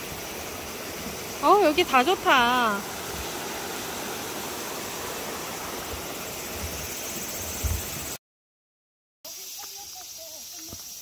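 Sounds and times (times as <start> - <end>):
stream rushing over rocks: 0.0 - 8.2.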